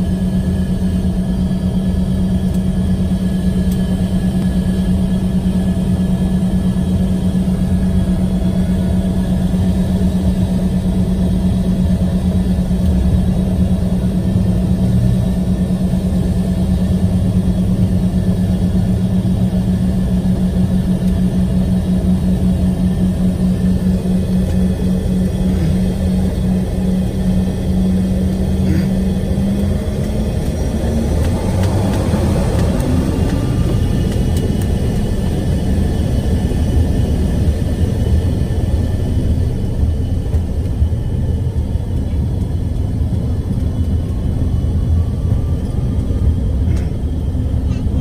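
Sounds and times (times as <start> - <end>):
jet engines droning: 0.0 - 48.0.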